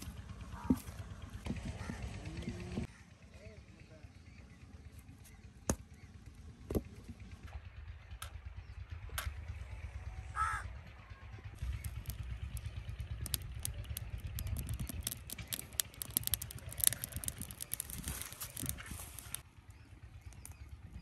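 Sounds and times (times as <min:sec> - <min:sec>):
twigs crackling in fire: 0:11.6 - 0:21.0.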